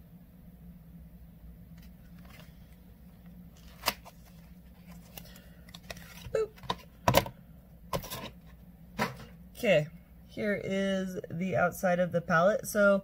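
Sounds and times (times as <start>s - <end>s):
packaging crinkling and rustling: 3.5s - 7.3s.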